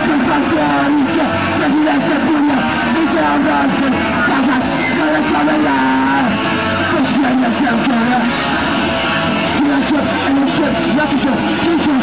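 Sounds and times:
vocalist yelling: 0.0s - 8.6s
distorted electric guitar: 0.0s - 12.0s
punk band playing live: 0.0s - 12.0s.

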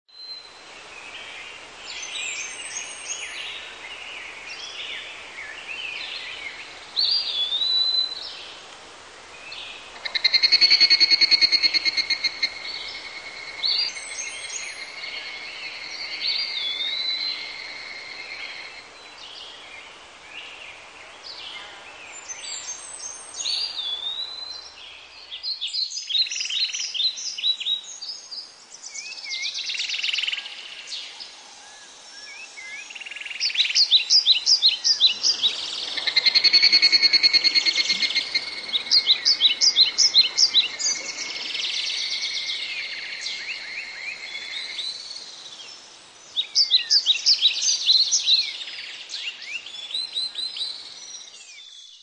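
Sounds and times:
forest birds chirping: 0.1s - 52.0s
whistle dipping and rising: 10.1s - 15.0s, 35.2s - 42.4s.

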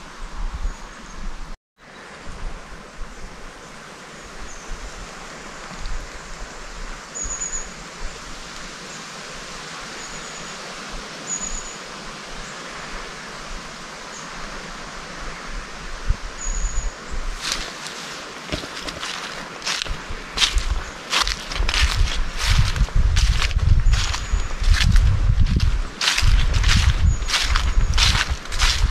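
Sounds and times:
footsteps on path: 17.3s - 28.9s.

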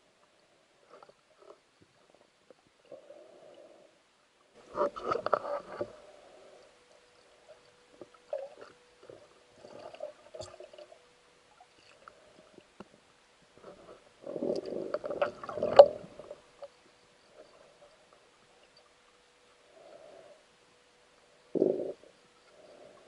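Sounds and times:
faint steady tone: 0.0s - 23.0s
water gurgling: 7.2s - 12.7s, 13.6s - 18.8s.

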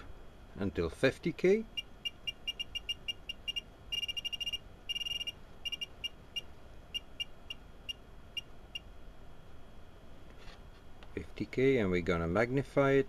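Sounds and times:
short electronic beeps: 1.7s - 8.8s.

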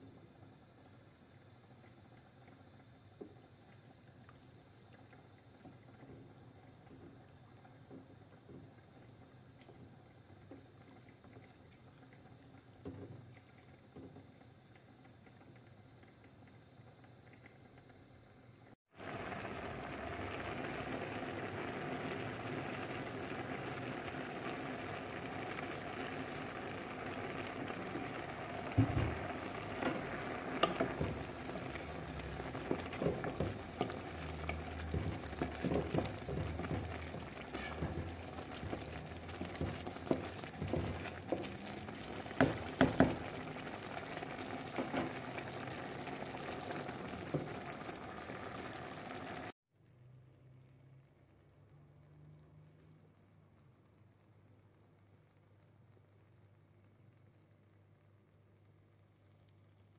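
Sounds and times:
rice boiling in water: 0.0s - 59.9s
wooden spoon knocking on pot: 28.7s - 43.4s.

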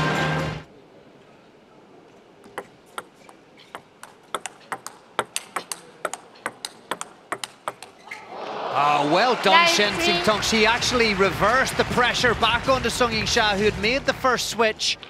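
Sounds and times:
table tennis ball clicking: 4.0s - 8.0s.

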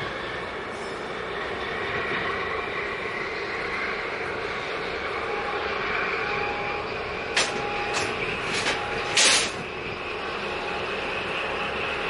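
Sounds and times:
ship engine and water wash: 0.0s - 12.0s.

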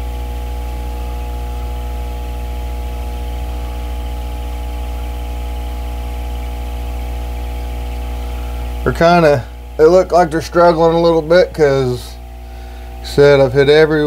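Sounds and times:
electrical hum: 0.0s - 14.0s.

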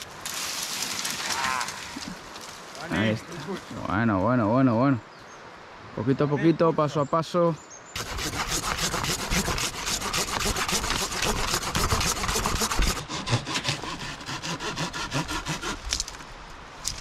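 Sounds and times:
hand saw cutting wood: 8.0s - 16.2s.

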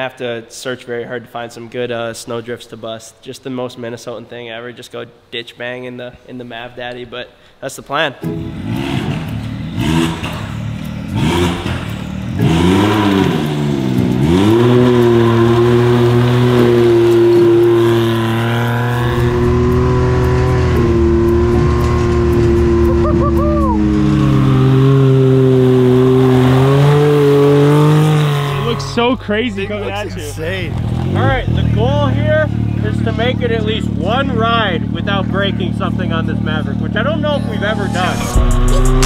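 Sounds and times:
off-road vehicle engine revving: 8.3s - 39.0s.

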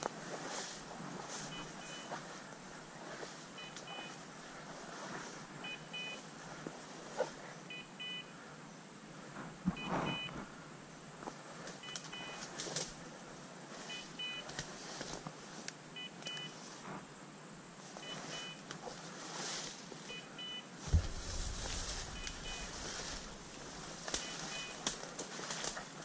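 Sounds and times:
footsteps rustling through dry brush: 0.1s - 5.6s, 11.3s - 15.7s, 18.2s - 20.1s, 20.8s - 26.0s
sharp thump: 20.9s - 23.5s
low rumble: 20.9s - 24.0s
beeper collar double beeps: 22.0s - 23.4s, 24.2s - 24.8s.

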